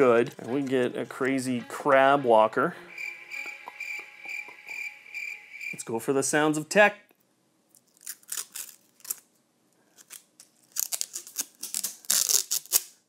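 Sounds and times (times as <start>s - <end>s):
protective film peeling crackle: 7.8s - 13.0s.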